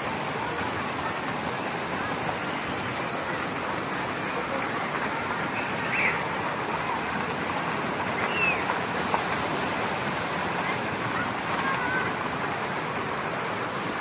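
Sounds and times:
splashing water: 0:00.0 - 0:14.0
faint high calls: 0:05.4 - 0:06.4, 0:08.1 - 0:08.8.

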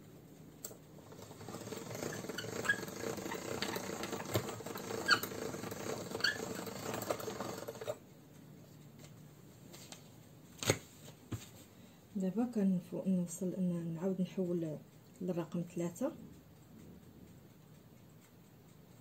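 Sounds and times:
pasta machine humming: 0:00.6 - 0:08.1
short rising squeaks: 0:01.1 - 0:08.0.

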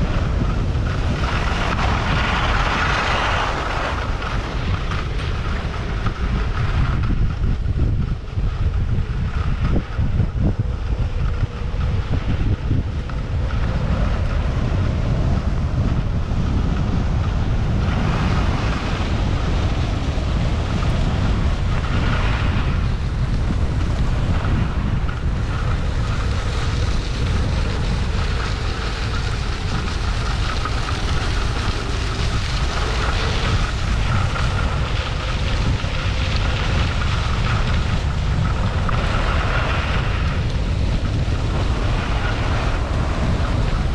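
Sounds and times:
skis scraping on packed snow: 0:00.0 - 0:09.7, 0:13.0 - 0:43.9
wind buffeting microphone: 0:00.0 - 0:43.9.

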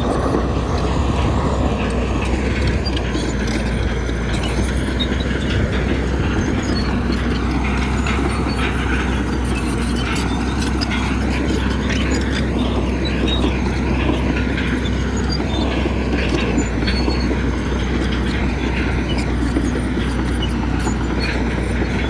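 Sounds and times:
diesel engine drone: 0:00.0 - 0:22.0
faint metallic clatter: 0:00.0 - 0:22.0.

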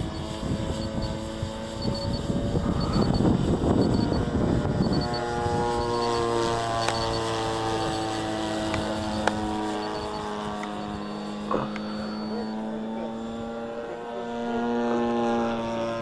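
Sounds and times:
wind buffeting microphone: 0:00.0 - 0:12.5
model plane motor droning: 0:00.0 - 0:16.0.

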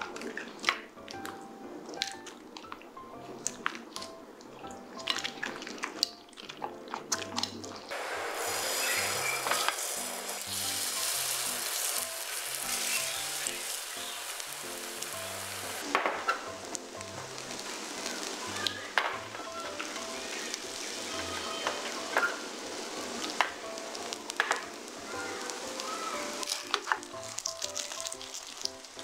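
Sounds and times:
batter sizzling in hot oil: 0:07.9 - 0:29.0.

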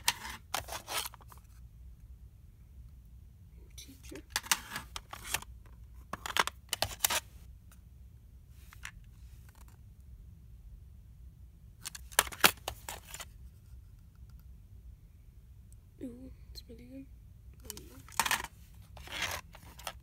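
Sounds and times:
plastic cassette cases rattling: 0:00.0 - 0:01.4, 0:04.3 - 0:07.2, 0:11.8 - 0:13.3, 0:17.7 - 0:20.0.

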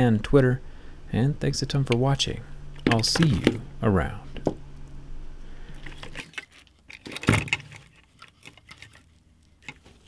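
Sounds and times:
knives clicking and clattering on table: 0:05.8 - 0:09.9.

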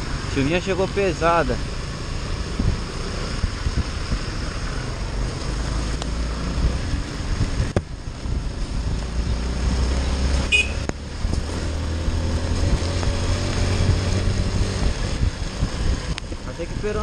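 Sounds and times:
wet tyres and rain hiss: 0:00.0 - 0:11.7
wind on microphone: 0:02.3 - 0:17.0.

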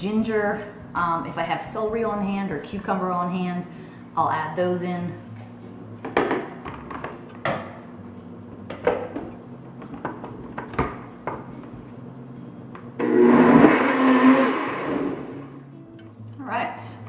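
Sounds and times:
blender running: 0:13.0 - 0:15.5.

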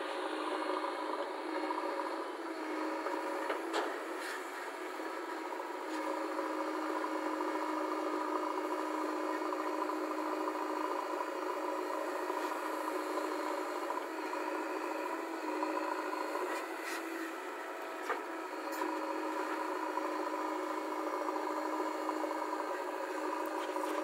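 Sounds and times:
diesel engine running: 0:00.0 - 0:24.0.

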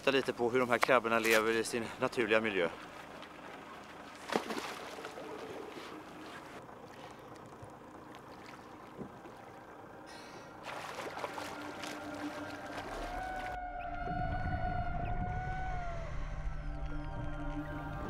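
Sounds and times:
faint water sounds: 0:00.0 - 0:13.7
diver splashing into sea: 0:03.6 - 0:06.2, 0:10.6 - 0:13.6.

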